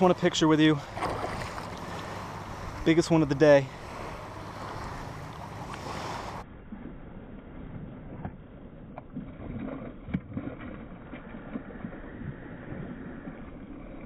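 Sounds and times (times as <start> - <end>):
fish splashing at surface: 0.8 - 2.7.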